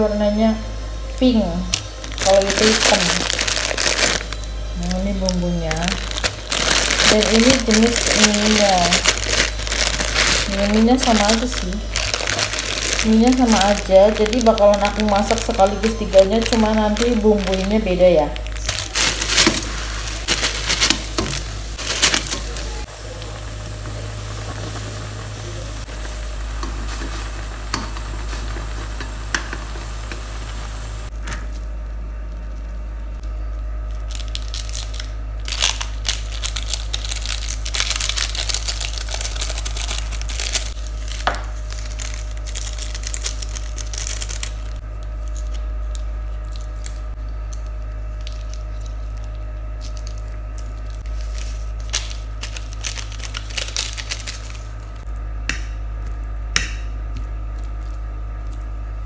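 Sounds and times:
steady low hum: 0.0 - 59.0
plastic sachets crinkling and tearing: 1.7 - 23.3, 33.8 - 55.0
water boiling hard: 19.1 - 31.2.

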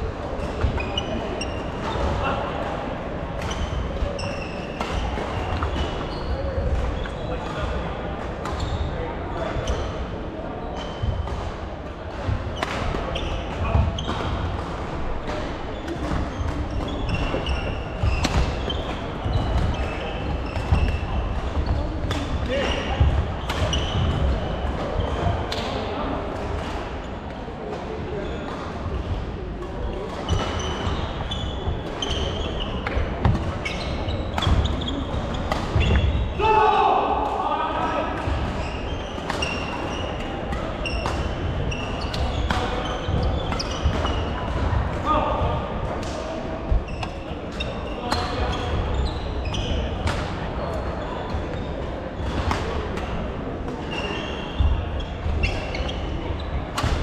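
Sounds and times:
voices echoing in hall: 0.0 - 57.0
court shoes squeaking: 0.2 - 57.0
racket hitting shuttlecock: 15.9 - 21.0, 56.8 - 57.0.

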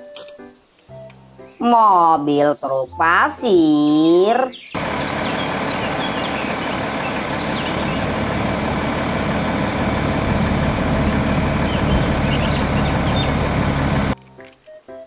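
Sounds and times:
diesel truck engine running: 4.8 - 14.2.

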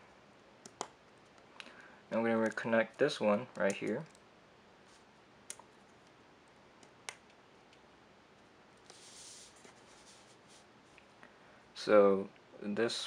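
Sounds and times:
soft rustle: 4.8 - 5.2, 8.7 - 11.2.

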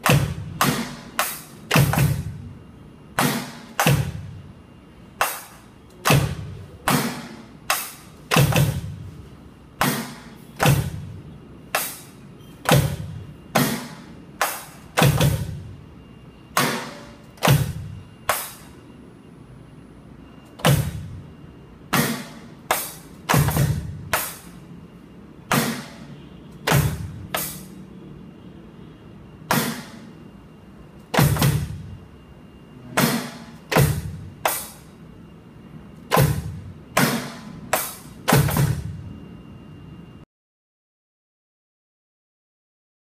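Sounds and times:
electronic drum hits: 0.0 - 2.4, 3.2 - 4.4, 5.2 - 9.2, 9.8 - 11.1, 11.7 - 15.8, 16.5 - 18.7, 20.6 - 21.2, 21.9 - 24.5, 26.7 - 27.7, 31.1 - 32.0, 33.0 - 34.9, 36.1 - 39.1.

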